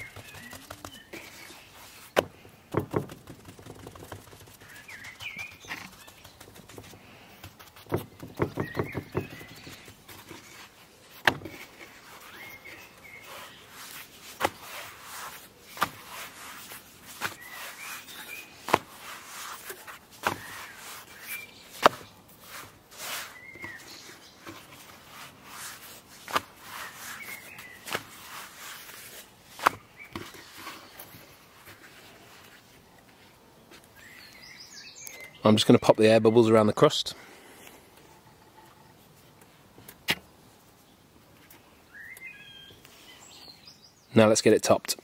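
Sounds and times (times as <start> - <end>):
dough slapping on wooden board: 0.0 - 1.4, 2.1 - 10.3, 14.3 - 21.1, 21.7 - 22.1.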